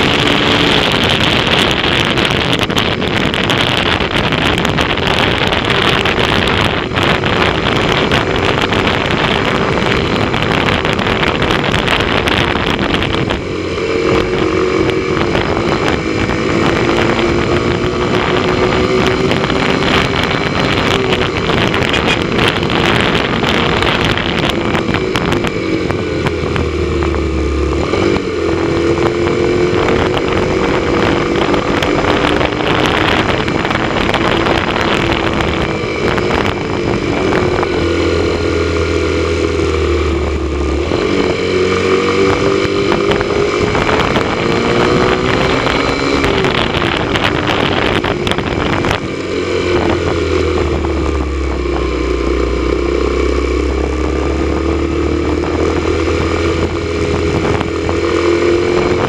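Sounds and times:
motorcycle engine cruising: 0:00.0 - 0:59.0
wind rush on microphone: 0:00.0 - 0:59.0.

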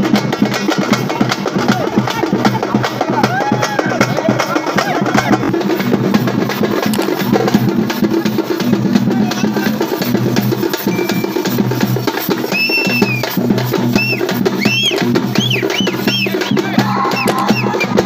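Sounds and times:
fast dense drumming: 0:00.0 - 0:18.0
high rising and falling call: 0:12.5 - 0:13.4, 0:14.0 - 0:18.0.

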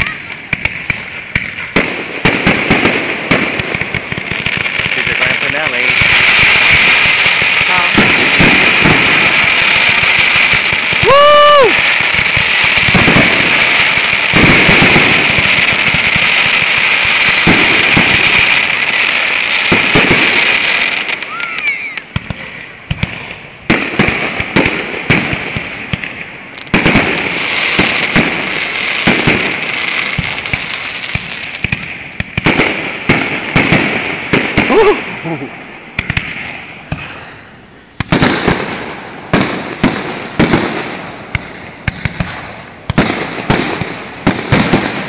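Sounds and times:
firework shells bursting with bangs: 0:00.0 - 0:45.0
fireworks crackling: 0:00.0 - 0:45.0
rising firework whistle: 0:05.0 - 0:25.4, 0:26.5 - 0:37.0.

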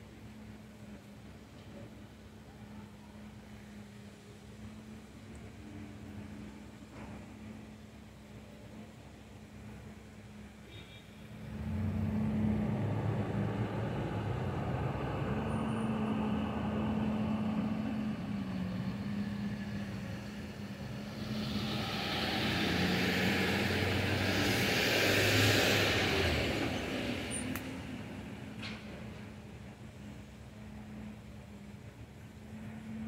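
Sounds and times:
broad rushing noise: 0:11.4 - 0:29.0
vehicle engine droning: 0:11.4 - 0:33.0.

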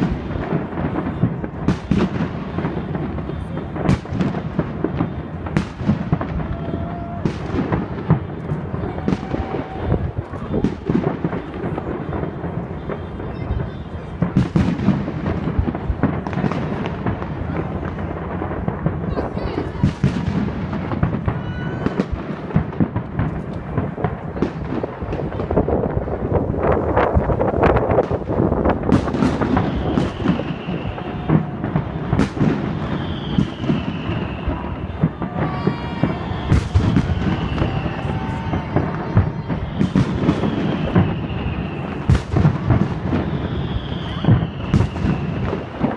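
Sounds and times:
fireworks booms and bangs: 0:00.0 - 0:45.9
faint high whistle: 0:29.6 - 0:42.1, 0:43.2 - 0:45.6.

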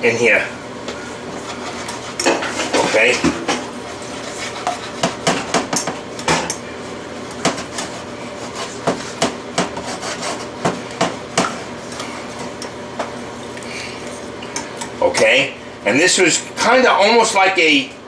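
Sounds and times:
steady hum: 0:00.0 - 0:18.0
whisk scraping metal pan: 0:01.4 - 0:05.7, 0:07.5 - 0:10.6.

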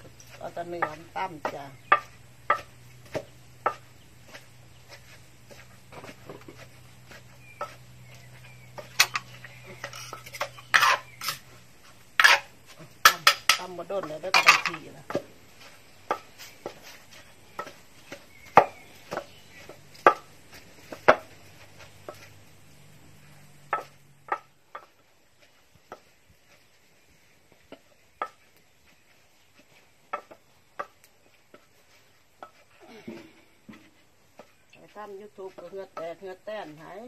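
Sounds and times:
pestle pounding in mortar: 0:00.0 - 0:11.1.

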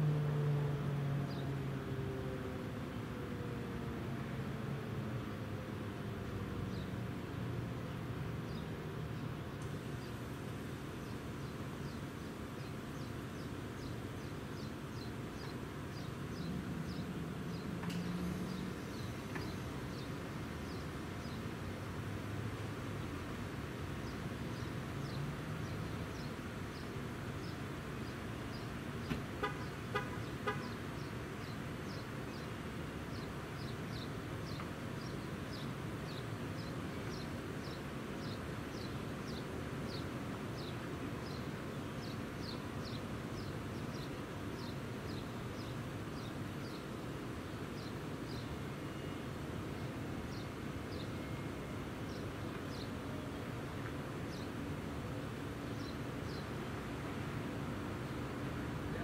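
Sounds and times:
road traffic rumble: 0:00.0 - 0:59.0
bird chirping: 0:55.8 - 0:56.5.

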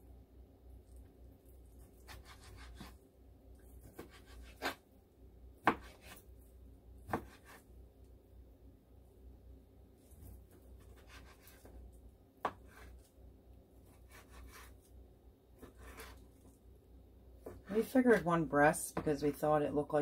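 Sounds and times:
knife slicing raw meat: 0:01.8 - 0:03.0, 0:03.8 - 0:04.8, 0:05.6 - 0:06.2, 0:07.1 - 0:07.6, 0:10.2 - 0:11.8.

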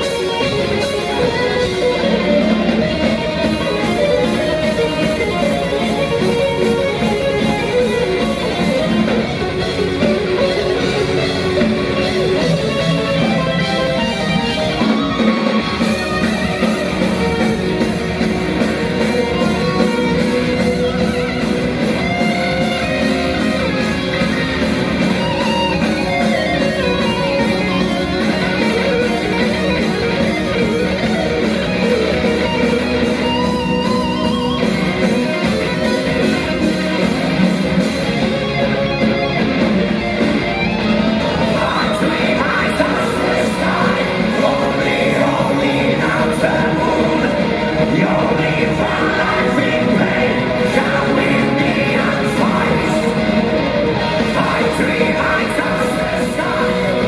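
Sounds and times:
bass and drums: 0:00.0 - 0:57.0
electric guitar: 0:00.0 - 0:57.0.

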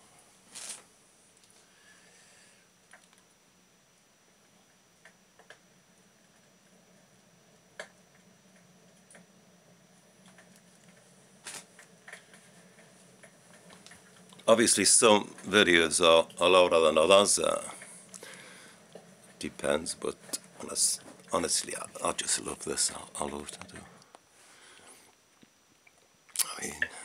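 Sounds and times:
low steady hum: 0:00.0 - 0:27.0
log fire crackles through speakers: 0:09.9 - 0:25.5.

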